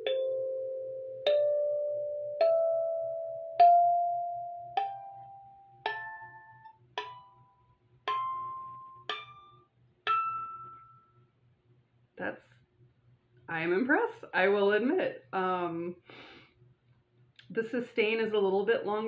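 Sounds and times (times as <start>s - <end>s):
kalimba notes plucked: 0.0s - 11.0s.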